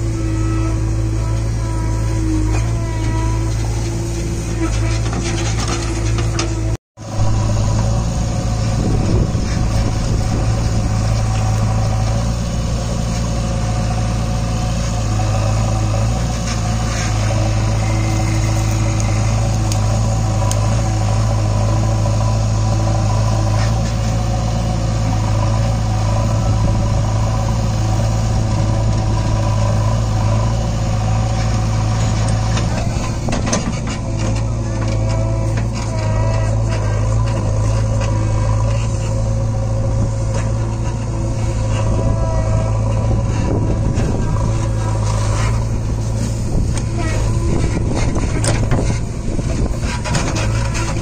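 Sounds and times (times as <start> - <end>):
diesel engine running: 0.0 - 51.0.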